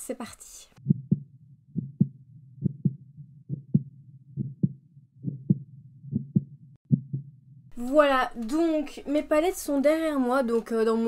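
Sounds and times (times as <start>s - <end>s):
heartbeat thumps: 0.8s - 7.6s.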